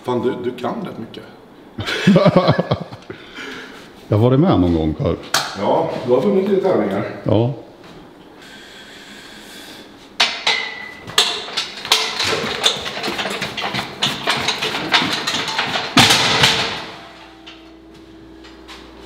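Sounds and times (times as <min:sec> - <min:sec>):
sharp knocks: 0:10.2 - 0:17.3
metal plates clanking: 0:10.2 - 0:17.8
heavy thud: 0:13.6 - 0:17.4.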